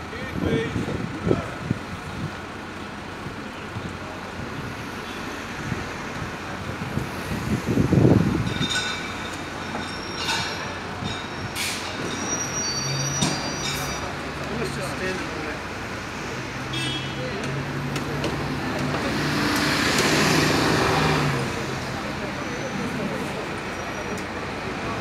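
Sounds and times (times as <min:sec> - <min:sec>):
city street traffic: 0:00.0 - 0:25.0
brakes squealing: 0:07.0 - 0:25.0
passing vehicle rumble: 0:14.0 - 0:25.0.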